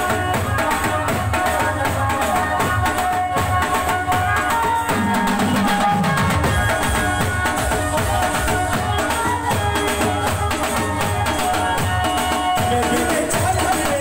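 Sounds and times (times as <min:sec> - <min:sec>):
busy drumming: 0:00.0 - 0:14.0
keyboard melody: 0:04.5 - 0:13.8.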